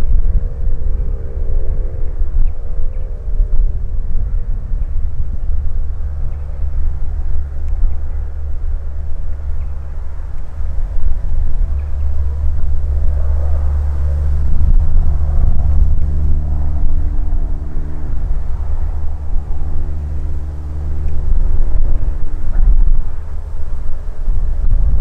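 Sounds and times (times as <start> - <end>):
heavy low rumble: 0.0 - 25.0
propeller plane engine drone: 0.0 - 25.0.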